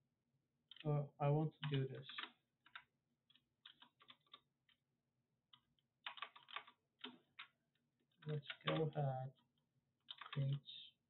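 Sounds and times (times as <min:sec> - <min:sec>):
computer keyboard typing: 0:01.6 - 0:04.8, 0:05.5 - 0:07.6, 0:08.2 - 0:09.0, 0:10.0 - 0:10.8.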